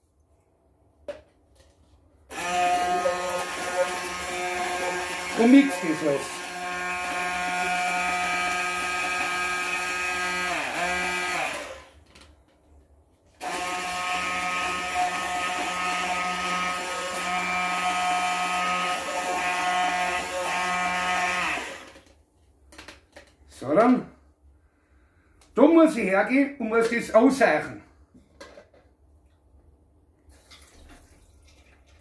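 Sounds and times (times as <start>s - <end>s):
immersion blender whining: 2.3s - 12.0s, 13.4s - 22.1s.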